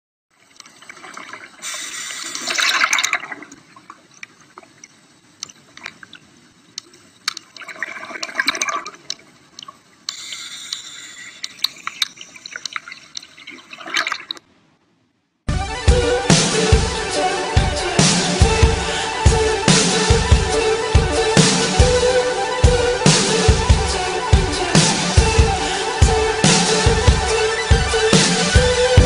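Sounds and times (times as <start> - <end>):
regulator bubbles gurgling: 0.3 - 14.4
sharp underwater clicks: 1.8 - 14.5.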